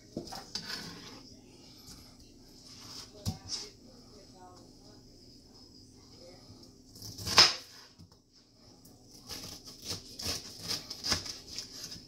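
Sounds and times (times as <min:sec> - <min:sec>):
knife slicing pineapple rind: 0:06.9 - 0:07.9, 0:09.1 - 0:12.0.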